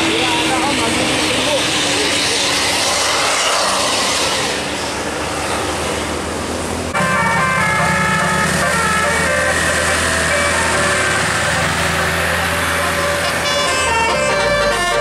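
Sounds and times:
bus engine and road noise: 0.0s - 15.0s
musical multi-tone air horn: 7.0s - 15.0s.

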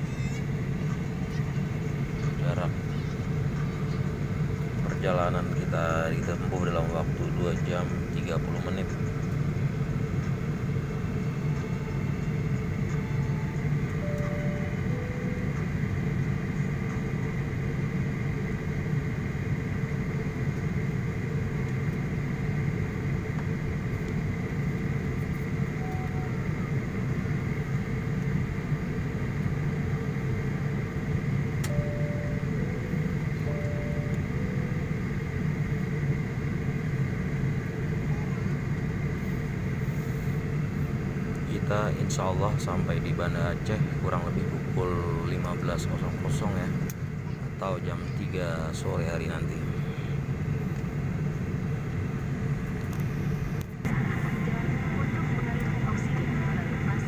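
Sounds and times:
airliner cabin noise: 0.0s - 57.0s
two-note chime: 14.0s - 15.6s, 31.6s - 34.8s.

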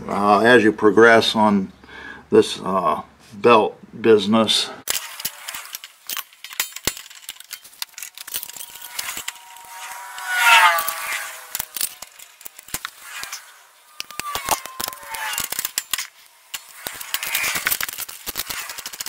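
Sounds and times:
metal parts clicking and rattling: 4.9s - 19.0s
short falling squeak: 8.4s - 17.6s.

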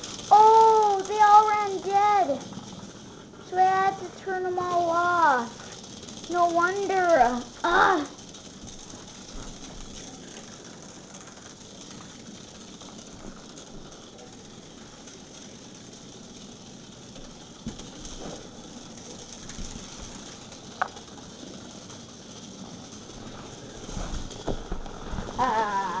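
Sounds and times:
vibrating toy bugs buzzing on concrete: 0.0s - 26.0s.

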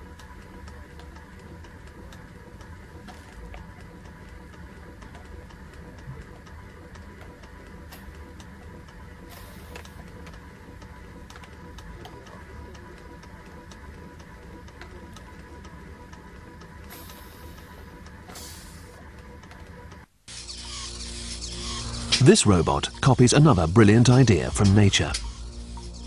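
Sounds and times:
steady low hum: 0.0s - 26.0s
air hissing: 9.3s - 10.0s, 16.9s - 19.0s.

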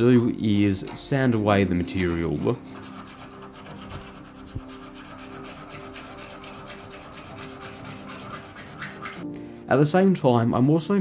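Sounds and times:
file rasping on brass: 2.0s - 9.2s.

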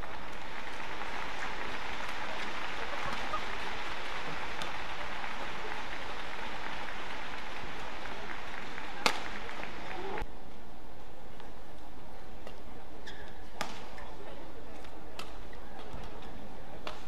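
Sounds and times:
crowd noise: 0.0s - 17.0s
racket hitting shuttlecock: 9.0s - 9.5s, 13.6s - 14.1s, 14.8s - 16.2s.

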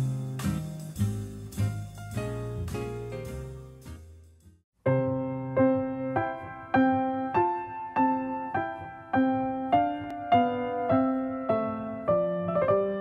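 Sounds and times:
slow piano chords: 4.8s - 13.0s.

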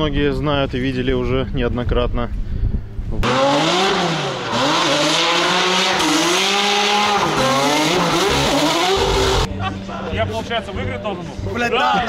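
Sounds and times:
car engine revving: 3.2s - 9.5s.

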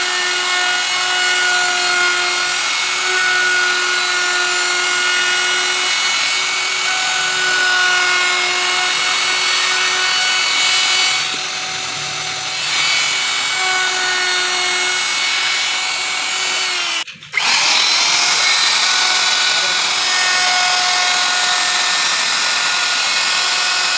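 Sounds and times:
router cutting wood: 0.0s - 23.9s.

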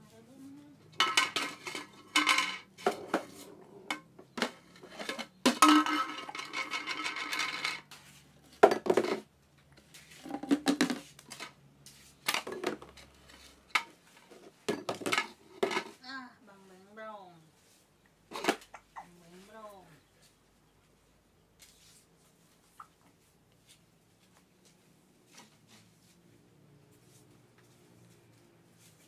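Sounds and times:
household objects clattering: 0.9s - 9.3s, 10.1s - 11.6s, 12.2s - 16.0s, 18.3s - 19.0s
objects rattling: 0.9s - 9.3s, 10.1s - 11.6s, 12.2s - 16.0s.

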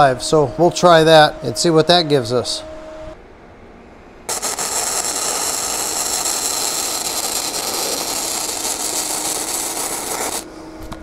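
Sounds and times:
welding arc sizzling: 4.3s - 10.5s.

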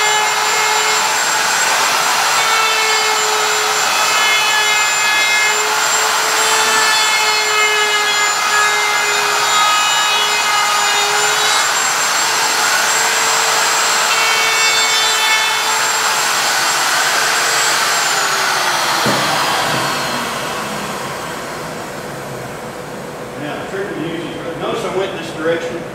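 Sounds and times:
router bit rasping wood: 0.0s - 21.5s
router motor whine: 0.0s - 22.4s.

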